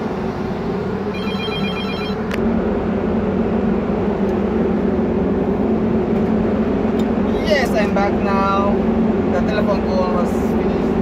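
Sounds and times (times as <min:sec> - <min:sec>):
machinery hum: 0:00.0 - 0:11.0
telephone ringing: 0:01.1 - 0:02.2.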